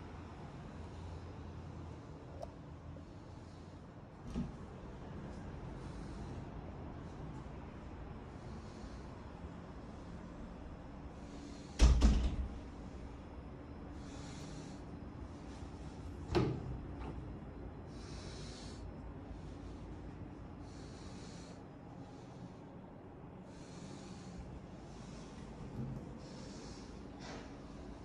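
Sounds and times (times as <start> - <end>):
quiet breaths: 0.0 - 28.0
door clunks: 11.8 - 12.6.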